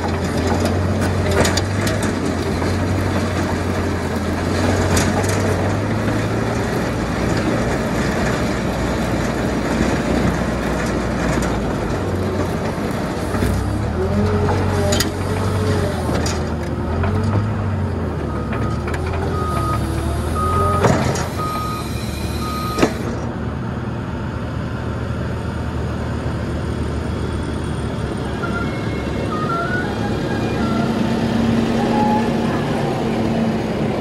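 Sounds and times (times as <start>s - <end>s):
tractor engine running: 0.0s - 34.0s
reversing alarm beeps: 18.3s - 23.0s, 28.3s - 32.8s.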